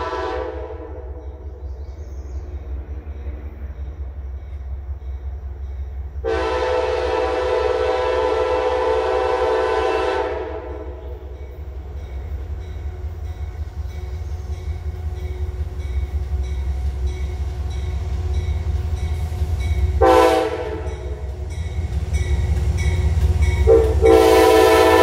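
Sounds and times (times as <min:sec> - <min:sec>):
train air horn chord: 0:00.0 - 0:01.2, 0:06.2 - 0:11.2, 0:20.0 - 0:21.2, 0:23.6 - 0:25.0
passing train rumble: 0:00.0 - 0:25.0.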